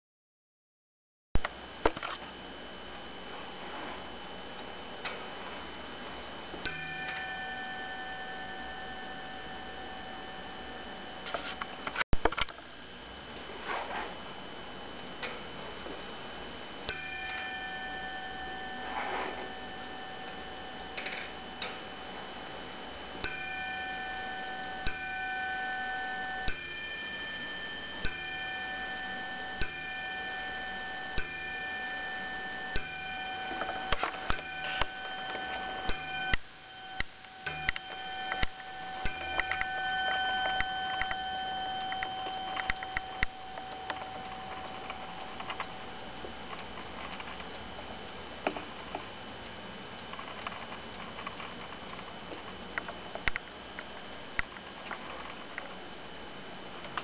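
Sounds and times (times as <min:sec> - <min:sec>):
clock striking bell: 0:06.6 - 0:11.9, 0:16.8 - 0:22.1, 0:23.0 - 0:46.0.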